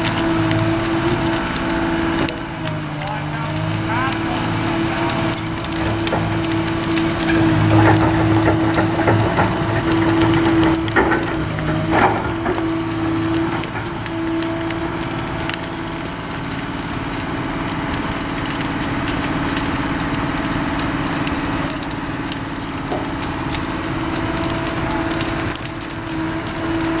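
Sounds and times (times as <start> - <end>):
excavator engine droning: 0.0 - 27.0
sharp cracks and crackles: 0.0 - 27.0.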